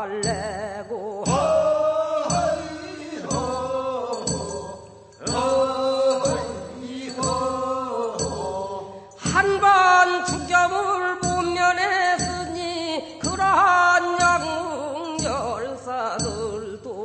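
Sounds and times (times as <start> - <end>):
person singing wavering notes: 0.0 - 17.0
sharp percussive stroke: 1.3 - 9.6.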